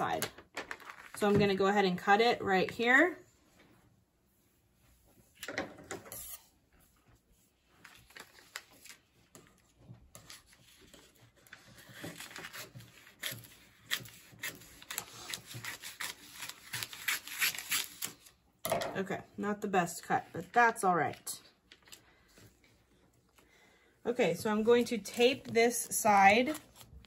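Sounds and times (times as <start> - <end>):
paper rustling: 0.6 - 1.2, 7.6 - 18.3, 24.8 - 27.0
scissors snipping paper: 11.5 - 18.3.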